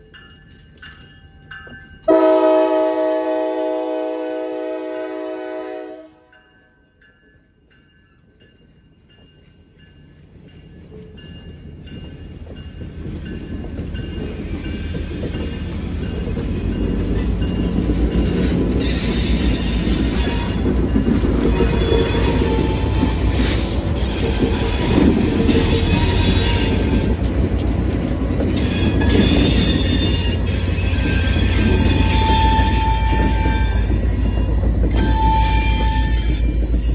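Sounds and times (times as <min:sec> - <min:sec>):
diesel locomotive engines rumbling: 0:00.0 - 0:36.9
railcars clattering over track: 0:00.0 - 0:36.9
train wheels squealing: 0:09.1 - 0:27.1, 0:28.5 - 0:36.9.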